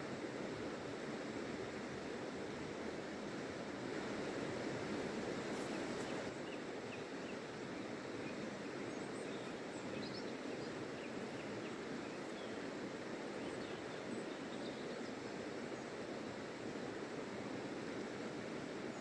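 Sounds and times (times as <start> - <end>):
river water rushing: 0.0 - 19.0
faint bird chirps: 5.5 - 12.6.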